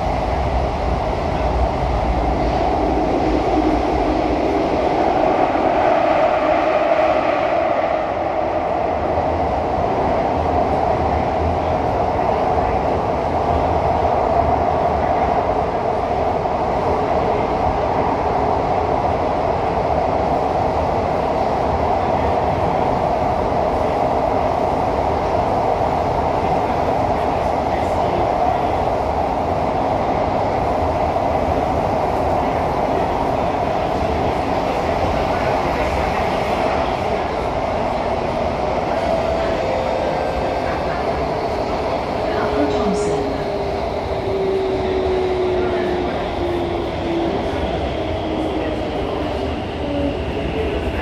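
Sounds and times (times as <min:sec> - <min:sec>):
train wheels rumbling on rail: 0:00.0 - 0:51.0.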